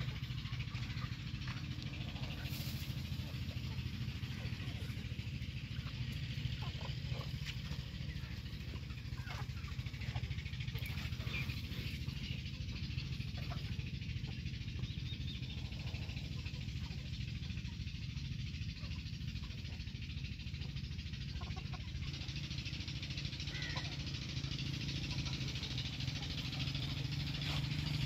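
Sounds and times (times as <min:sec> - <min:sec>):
chickens clucking: 0:00.0 - 0:28.0
steady low hum: 0:00.0 - 0:28.0.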